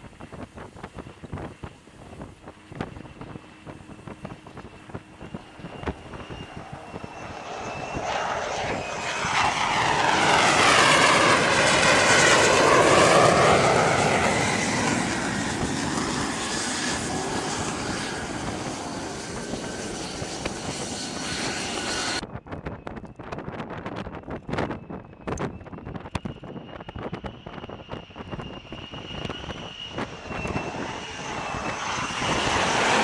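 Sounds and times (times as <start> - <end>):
jet engine roaring: 0.0 - 22.4, 24.3 - 33.0.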